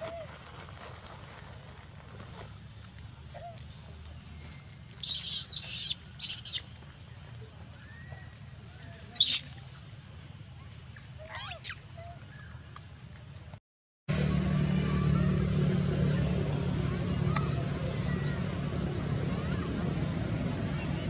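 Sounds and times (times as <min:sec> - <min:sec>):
monkeys screeching: 0:05.0 - 0:06.6, 0:09.2 - 0:09.5, 0:11.3 - 0:11.8
low hum: 0:14.1 - 0:21.0.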